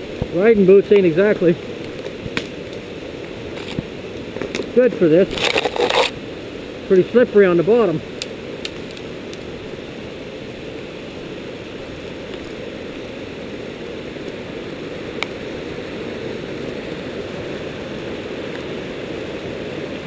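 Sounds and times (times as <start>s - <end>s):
creek splashing over rocks: 0.0s - 20.0s.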